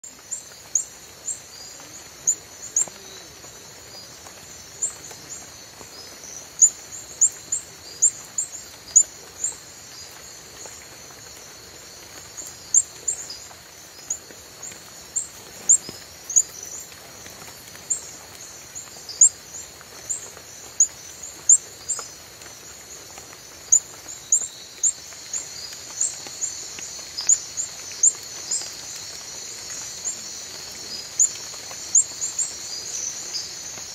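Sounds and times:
frog chirping: 0:06.6 - 0:09.6, 0:12.4 - 0:16.8, 0:17.8 - 0:20.2, 0:20.8 - 0:22.0, 0:23.7 - 0:29.0, 0:29.7 - 0:33.8.

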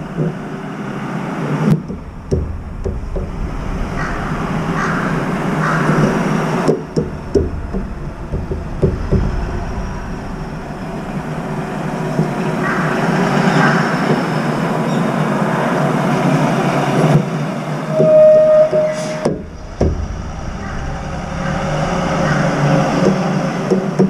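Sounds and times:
road traffic noise: 0:00.0 - 0:24.0
short knocks: 0:01.7 - 0:12.4.

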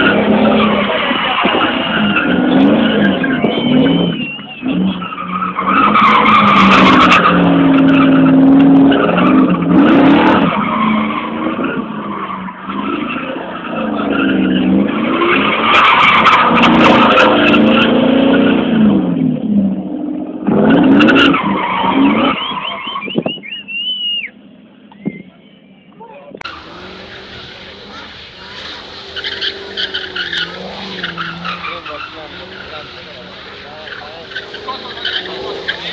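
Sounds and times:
tyres screeching: 0:00.0 - 0:18.4, 0:26.4 - 0:35.9
car engine revving: 0:00.0 - 0:23.1, 0:26.4 - 0:35.9.

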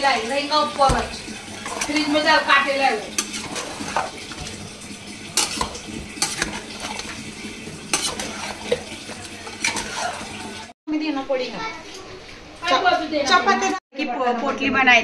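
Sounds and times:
spatula scraping metal pot: 0:00.0 - 0:10.7
soft sizzle: 0:00.0 - 0:13.8.

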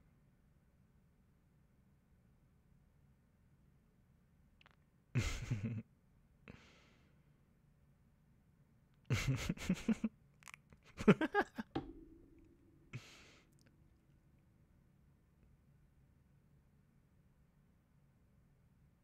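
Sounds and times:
man laughing softly: 0:05.2 - 0:05.8, 0:09.1 - 0:10.2, 0:10.8 - 0:11.7.

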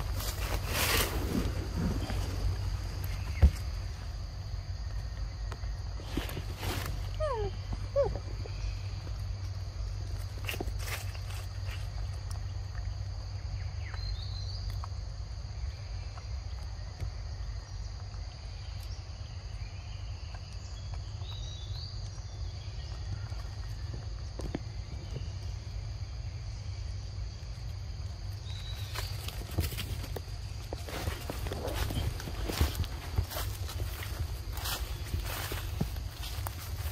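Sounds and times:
footsteps on dry leaves: 0:00.0 - 0:04.1, 0:06.0 - 0:07.2, 0:10.1 - 0:12.0, 0:28.5 - 0:36.9
constant low rumble: 0:00.0 - 0:36.9
high insect drone: 0:00.0 - 0:36.9.

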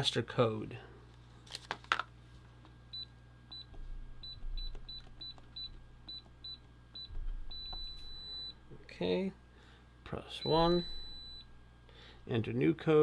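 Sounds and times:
keypad beeps: 0:03.0 - 0:08.6, 0:10.4 - 0:11.5.

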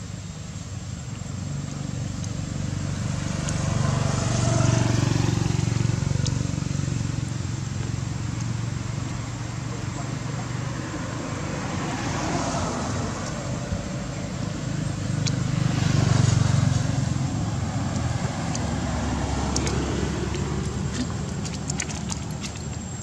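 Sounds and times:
passing motor vehicle rumble: 0:00.0 - 0:23.0.

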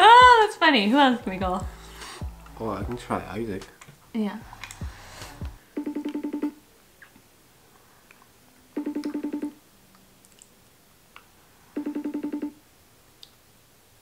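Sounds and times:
phone call ringing trill: 0:05.8 - 0:06.6, 0:08.8 - 0:09.6, 0:11.8 - 0:12.6.

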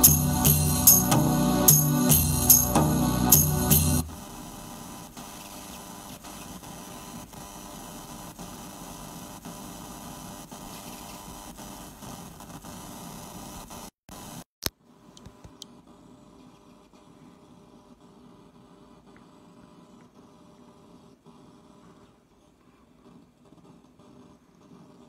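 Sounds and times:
percussive music with tambourine: 0:00.0 - 0:04.2
static hiss: 0:00.0 - 0:14.5
low mains hum: 0:14.8 - 0:25.0.

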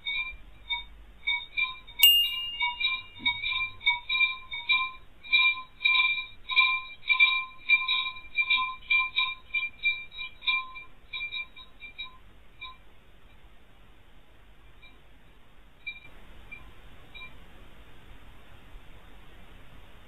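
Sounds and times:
small metal chimes tinkling: 0:02.0 - 0:03.7.

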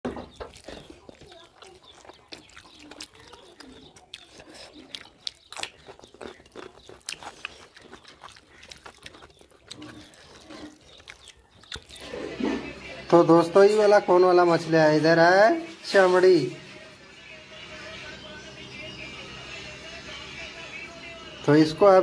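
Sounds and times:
fingers mixing rice on plates: 0:00.1 - 0:12.8
chewing and lip-smacking: 0:00.1 - 0:13.1.

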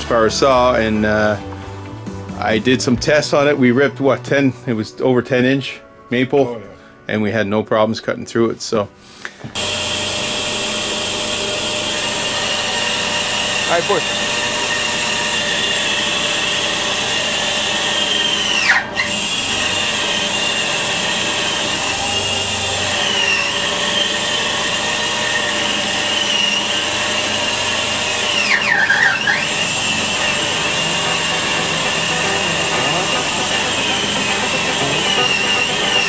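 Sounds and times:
band saw whine: 0:09.6 - 0:36.0
saw cutting wood: 0:09.6 - 0:36.0.

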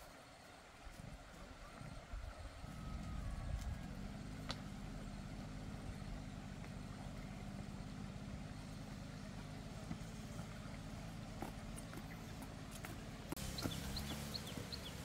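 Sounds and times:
engine running steadily: 0:00.0 - 0:15.0.

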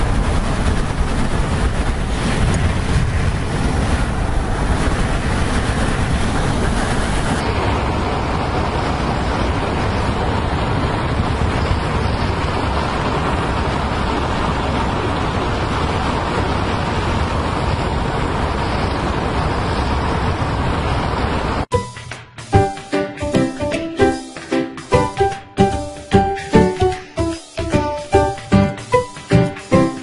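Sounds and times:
wind buffeting microphone: 0:00.0 - 0:21.7.

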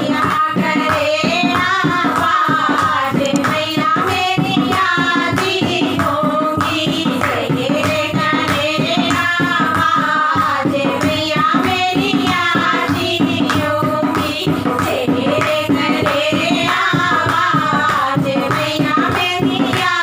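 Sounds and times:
women singing devotional song: 0:00.0 - 0:20.0
hands clapping: 0:03.2 - 0:03.6.

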